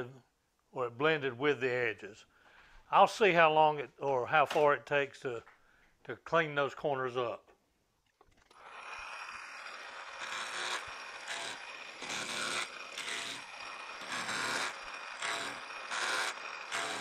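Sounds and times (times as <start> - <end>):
cutting tool rasping on metal: 8.6 - 17.0
metal lathe running with whine: 8.6 - 17.0.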